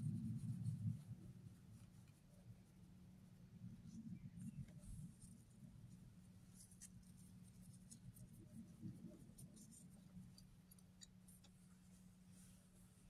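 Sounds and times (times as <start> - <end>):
faint scratchy rustling: 0.0 - 13.0
low steady hum: 0.0 - 13.0.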